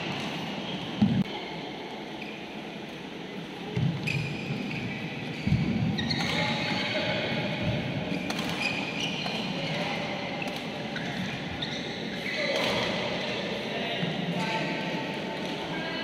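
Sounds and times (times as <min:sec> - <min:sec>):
shoes squeaking on court: 0:04.0 - 0:06.9, 0:08.1 - 0:09.8, 0:10.9 - 0:12.6
rackets hitting shuttlecock: 0:08.1 - 0:11.3.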